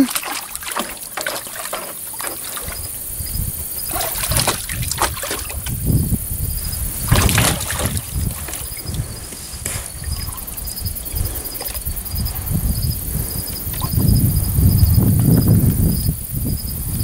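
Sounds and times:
dog splashing in water: 0:00.0 - 0:05.8, 0:06.9 - 0:09.0.

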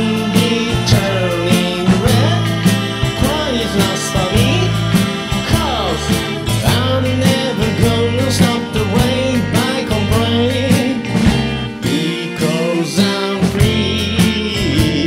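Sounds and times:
steady beat: 0:00.0 - 0:11.8
bass line: 0:00.0 - 0:15.0
sliding guitar lines: 0:00.0 - 0:15.0.

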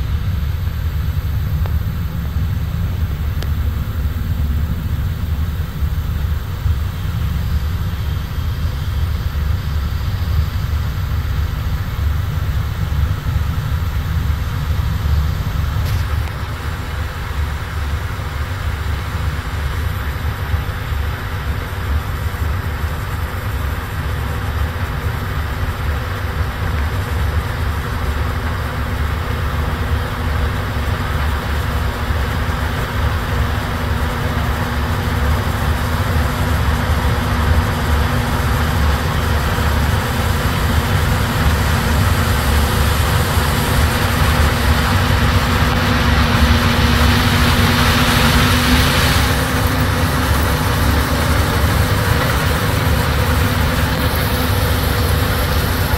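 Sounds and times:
heavy diesel rumble: 0:00.0 - 0:55.9
loud rushing hiss: 0:00.0 - 0:55.9.

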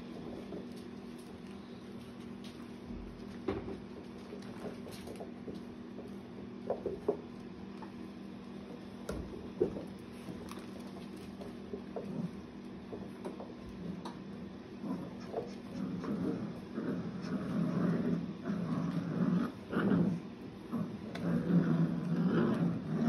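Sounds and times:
puppies scuffling and padding: 0:00.0 - 0:17.3
steady low hum: 0:00.0 - 0:23.0.

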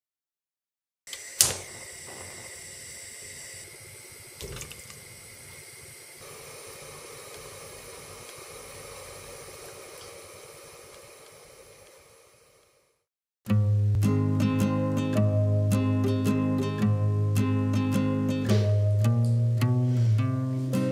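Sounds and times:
gas burner hissing: 0:01.1 - 0:13.1
water simmering and bubbling: 0:01.8 - 0:12.2.

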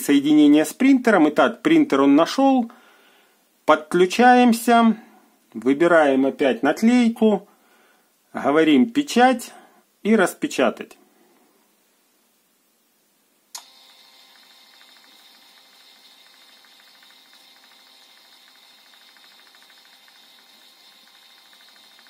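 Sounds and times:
printer feed motor ticking: 0:13.6 - 0:22.0.

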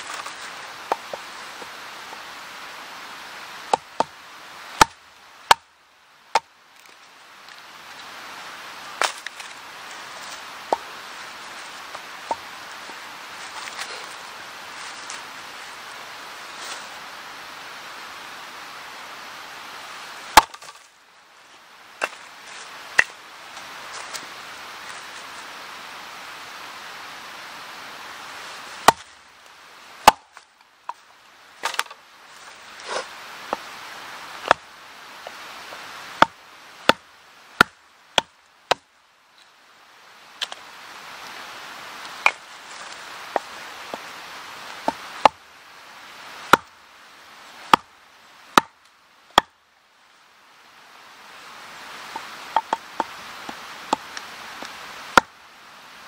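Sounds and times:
hatchet chopping wood: 0:00.0 - 0:01.2, 0:03.6 - 0:04.2, 0:04.8 - 0:05.7, 0:09.0 - 0:09.4, 0:20.3 - 0:20.8, 0:28.8 - 0:29.1, 0:30.0 - 0:31.0, 0:31.6 - 0:32.0, 0:34.4 - 0:34.6, 0:35.2 - 0:38.9, 0:44.8 - 0:45.4, 0:46.5 - 0:46.7, 0:47.7 - 0:47.9, 0:48.6 - 0:48.8, 0:49.4 - 0:49.6, 0:52.2 - 0:55.3
steady hiss: 0:00.0 - 0:56.0.

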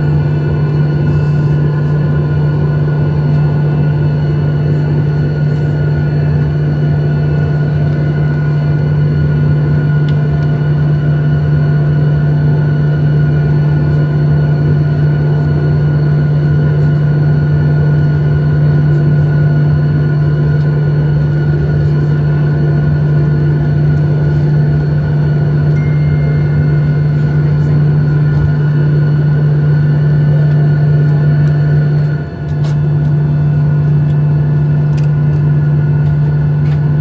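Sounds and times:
jet engines idling drone: 0:00.0 - 0:37.0
faint high whines: 0:25.6 - 0:29.7.

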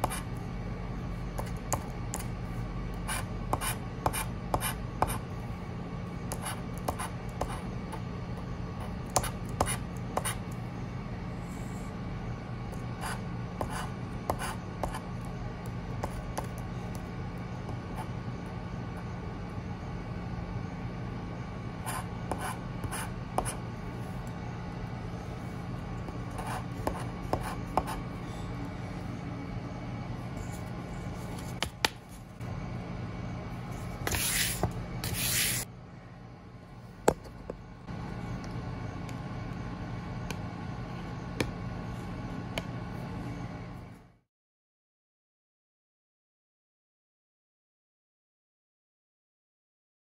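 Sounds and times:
steady low hum: 0:00.0 - 0:44.3
metal tool scratching card: 0:34.0 - 0:35.6.

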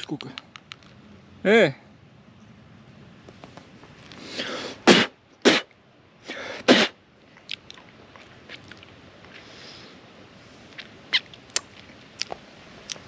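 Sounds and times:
person drawing in breath: 0:04.1 - 0:04.9
person sneezing or coughing: 0:04.4 - 0:05.7, 0:06.3 - 0:07.0.

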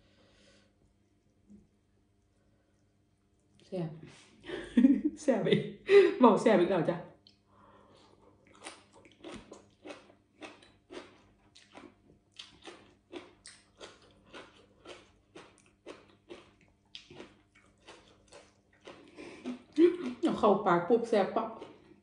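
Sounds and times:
wet crunchy chewing: 0:08.0 - 0:20.2.

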